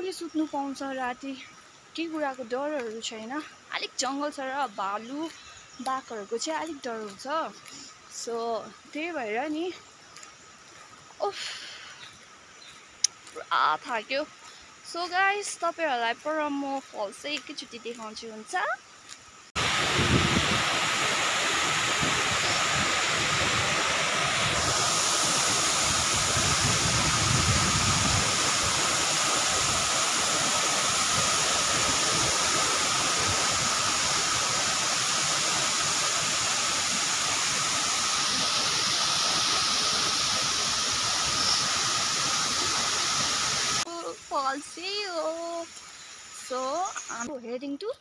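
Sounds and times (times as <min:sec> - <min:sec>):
waterfall rushing: 0:19.6 - 0:43.9.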